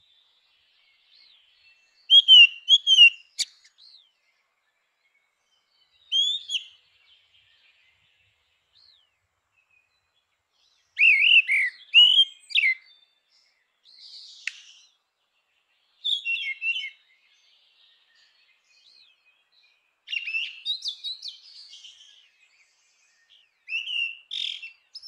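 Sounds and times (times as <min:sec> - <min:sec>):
bird singing fluty whistles: 0:01.1 - 0:04.1, 0:06.0 - 0:06.8, 0:11.0 - 0:13.1, 0:16.0 - 0:17.1, 0:20.1 - 0:25.0
bird click: 0:14.4 - 0:14.8.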